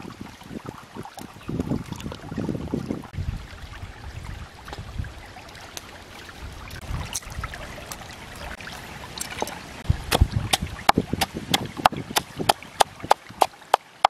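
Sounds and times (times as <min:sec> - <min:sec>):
stream water running: 0:00.0 - 0:14.0.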